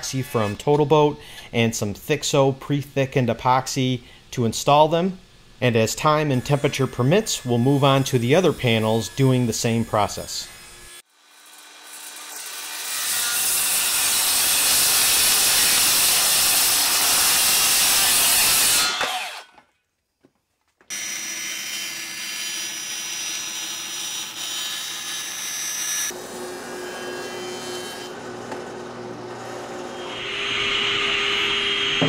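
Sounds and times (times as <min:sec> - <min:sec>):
circular saw cutting plywood: 0:06.0 - 0:19.6, 0:20.9 - 0:32.0.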